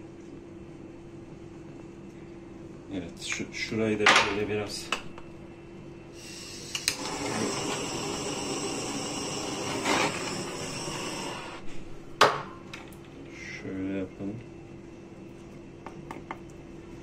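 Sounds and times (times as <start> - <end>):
torch flame hissing: 6.1 - 11.8
torch ignition click: 6.6 - 7.2.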